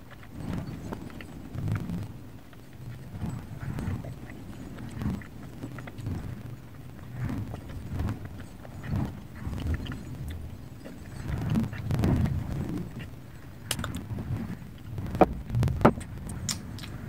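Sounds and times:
person chewing: 13.7 - 14.0.

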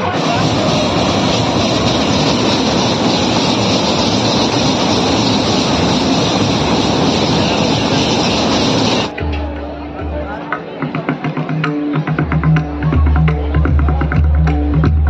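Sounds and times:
fairground ride machinery rumbling: 0.0 - 10.1.

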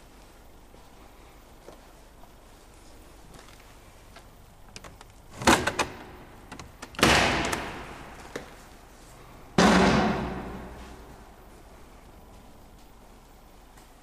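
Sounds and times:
heavy bangs echoing: 7.0 - 8.2, 9.5 - 11.2
sharp knocks: 9.6 - 10.9.

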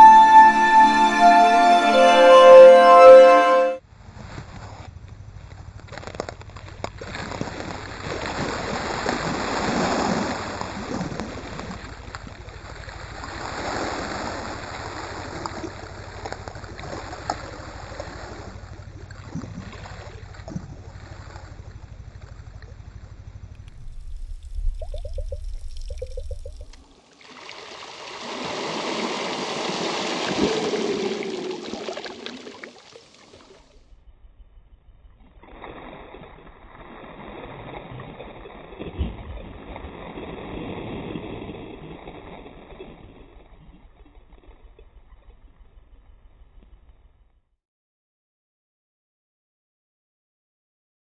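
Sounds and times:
water splashes: 23.7 - 33.7
small waves lapping on shore: 27.0 - 33.5.

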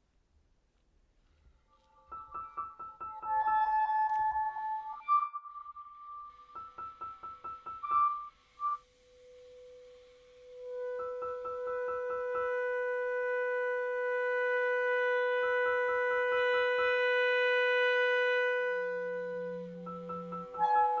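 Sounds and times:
clarinet: 1.3 - 21.0
soprano saxophone: 8.6 - 21.0.

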